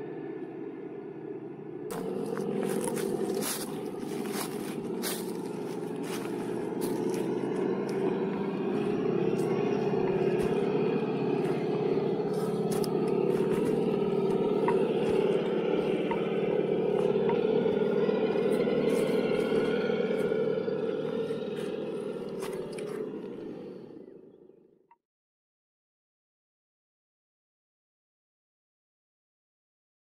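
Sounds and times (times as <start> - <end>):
truck engine running: 1.9 - 24.2.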